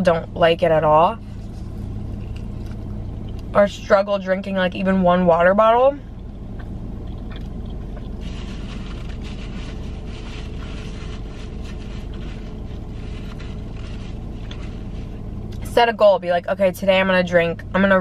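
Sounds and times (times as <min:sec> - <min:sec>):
low hum inside car: 0:00.0 - 0:18.0
person chewing food: 0:06.6 - 0:09.2.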